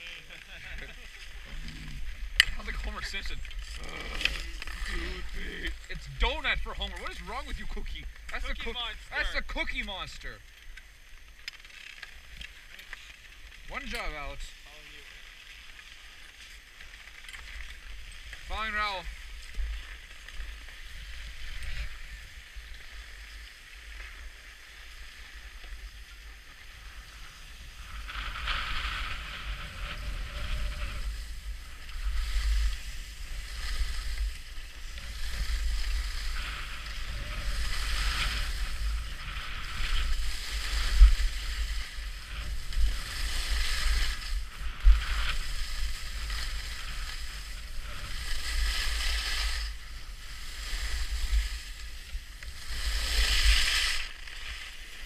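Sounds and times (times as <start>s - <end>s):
skis scraping on snow: 0.0s - 55.0s
wind rumble on microphone: 17.6s - 55.0s.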